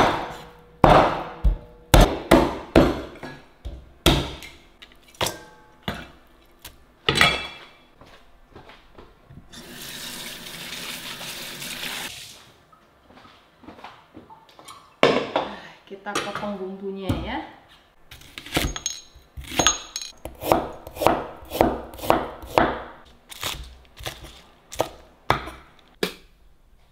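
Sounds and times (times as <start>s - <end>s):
knife chopping bones on board: 20.2s - 22.9s.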